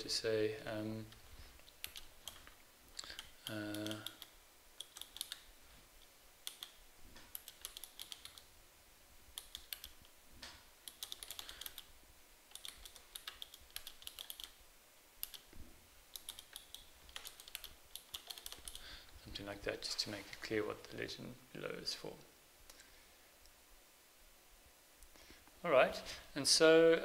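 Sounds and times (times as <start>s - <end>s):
faint keyboard typing: 1.0s - 8.5s, 9.3s - 11.9s, 12.5s - 14.6s, 15.2s - 20.6s.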